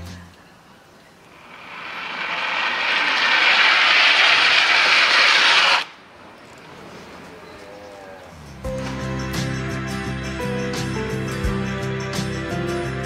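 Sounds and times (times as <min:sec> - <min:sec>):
skis hissing down track: 0:01.3 - 0:06.0.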